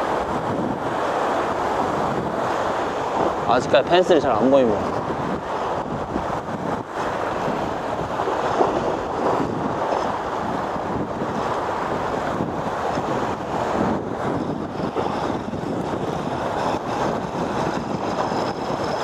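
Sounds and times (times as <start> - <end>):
waves breaking on rocks: 0.0 - 19.0
wind buffeting microphone: 0.0 - 19.0.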